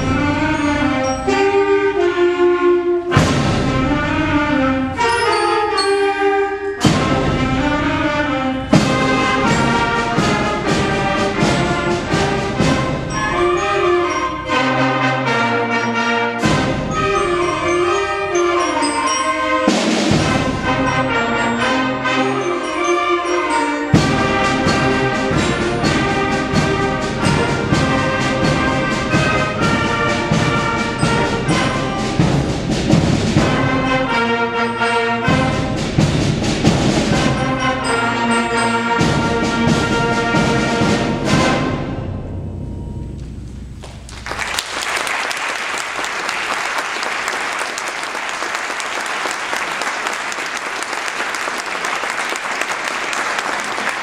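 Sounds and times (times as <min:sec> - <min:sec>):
concert band playing: 0:00.0 - 0:54.0
audience applause: 0:43.8 - 0:54.0.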